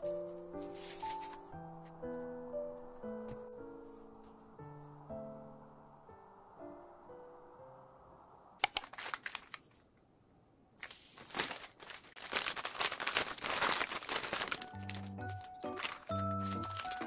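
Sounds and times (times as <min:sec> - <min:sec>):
gentle background music: 0:00.0 - 0:08.5, 0:14.2 - 0:17.0
sharp clicks: 0:08.6 - 0:09.0
plastic packaging crinkling: 0:08.7 - 0:09.9, 0:10.8 - 0:17.0.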